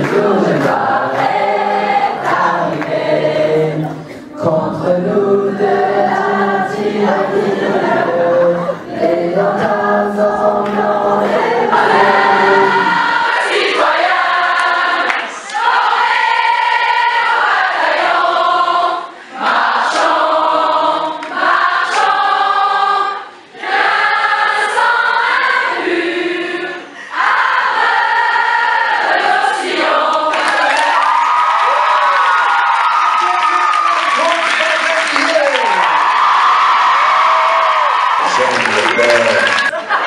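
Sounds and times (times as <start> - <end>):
group singing together: 0.0 - 31.5.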